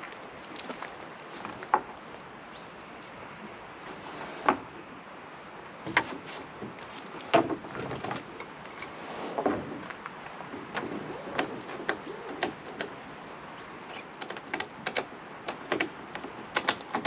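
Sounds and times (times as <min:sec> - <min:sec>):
straps scraping: 0:10.6 - 0:12.9
buckles clicking and knocking: 0:13.9 - 0:17.0.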